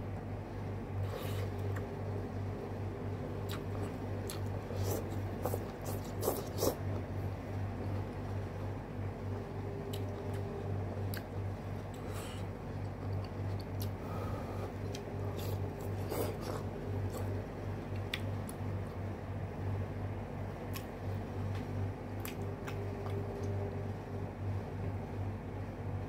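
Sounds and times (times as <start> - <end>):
low hum: 0.0 - 26.0
person chewing: 3.4 - 7.1, 9.8 - 18.6, 22.2 - 23.7.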